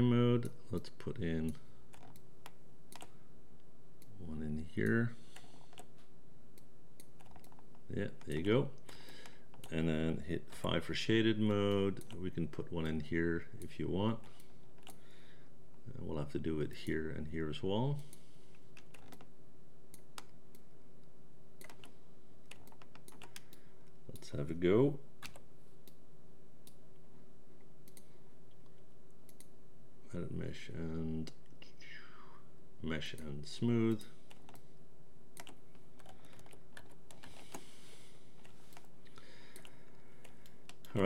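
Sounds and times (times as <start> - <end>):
faint steady hum: 0.0 - 41.0
keyboard and mouse clicking: 1.5 - 3.1, 6.6 - 8.4, 18.7 - 19.3, 21.6 - 24.3, 25.2 - 26.0, 35.4 - 37.7, 39.5 - 41.0.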